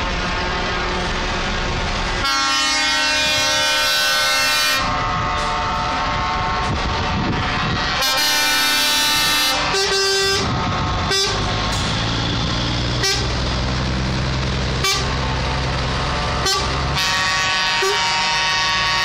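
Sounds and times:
diesel engines droning: 0.0s - 19.0s
truck air horns honking: 2.2s - 11.6s, 12.9s - 13.4s, 14.8s - 15.2s, 16.4s - 19.0s.

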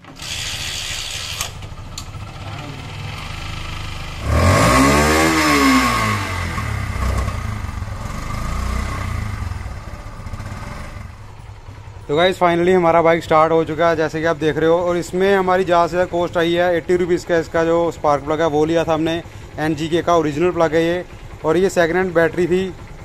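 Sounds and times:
engine revving: 0.0s - 11.8s
motorcycle engine starting and idling: 0.0s - 23.0s.

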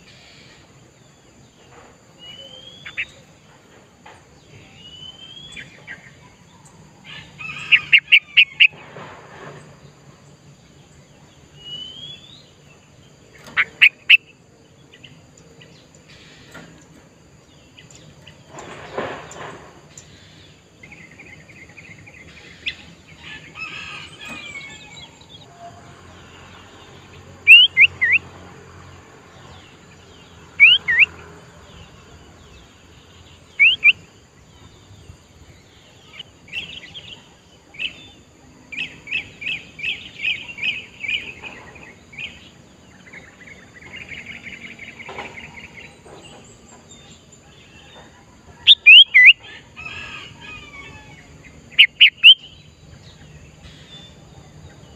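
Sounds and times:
bird chattering: 13.3s - 14.4s, 27.4s - 28.2s, 30.6s - 31.2s, 33.6s - 34.0s, 48.6s - 49.4s, 51.6s - 52.6s
bird whistled calls: 27.5s - 28.2s, 30.6s - 31.1s, 33.6s - 34.0s, 48.7s - 49.5s, 51.8s - 52.6s.

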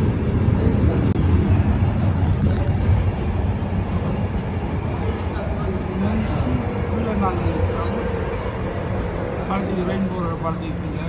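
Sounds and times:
freight train rumbling overhead: 0.0s - 11.0s.

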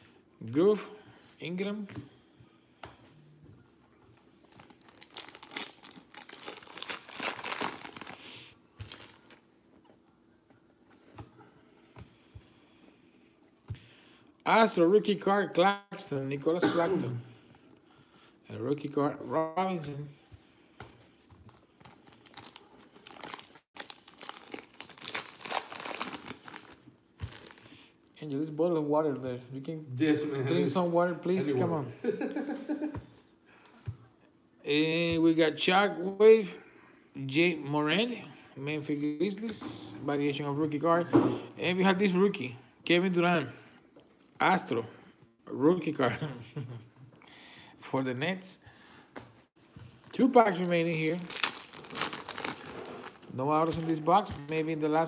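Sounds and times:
foil wrapper tearing and crinkling: 4.5s - 8.2s, 21.8s - 27.7s, 50.5s - 54.5s.

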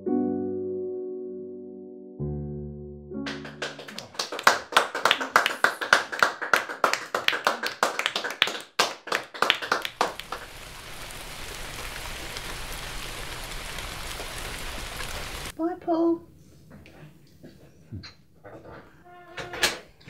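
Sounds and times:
people clapping: 3.3s - 15.5s
steady rain falling: 9.6s - 15.6s.

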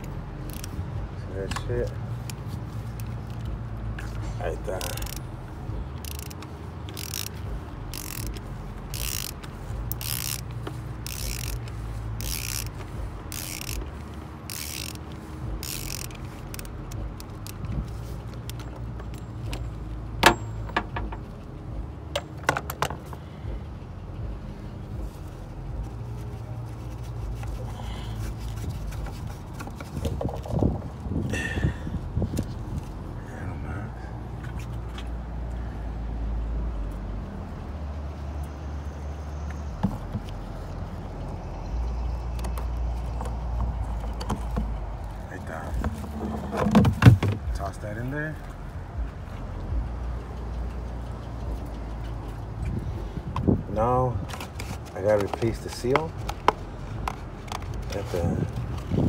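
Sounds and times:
socket ratchet clicking: 0.0s - 0.8s, 4.7s - 5.2s, 6.0s - 21.2s.

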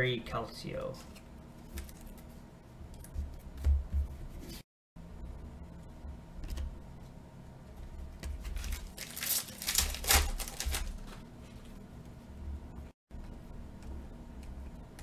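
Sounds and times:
foil wrapper crinkling and tearing: 8.4s - 11.2s.

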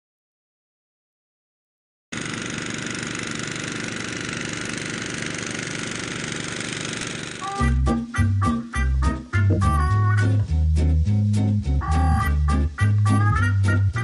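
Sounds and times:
music with strong beat: 7.4s - 14.0s.

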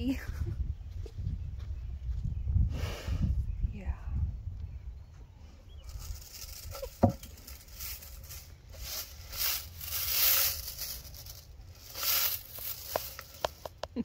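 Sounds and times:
brush scratching over hair: 5.9s - 13.7s.

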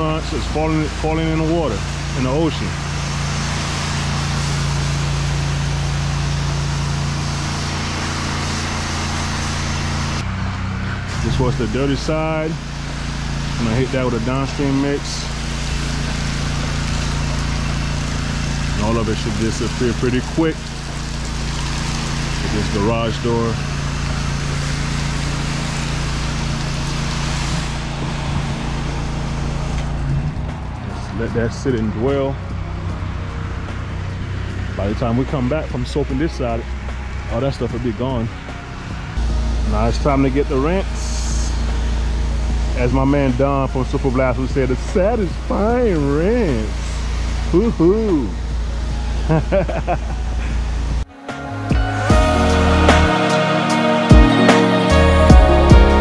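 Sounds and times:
water spraying hiss: 0.0s - 10.3s, 10.9s - 32.3s, 39.2s - 51.0s
pressure washer engine hum: 0.0s - 56.0s.

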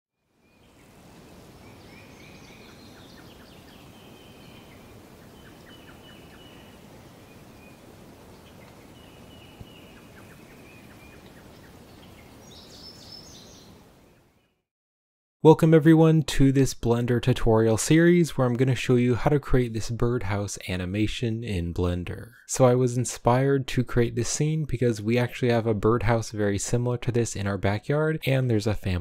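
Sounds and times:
steady background hiss: 0.4s - 14.2s
birds calling: 1.4s - 13.8s.

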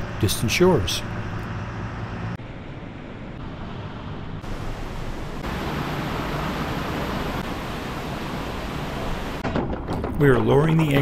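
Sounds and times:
rain falling: 4.4s - 9.4s.

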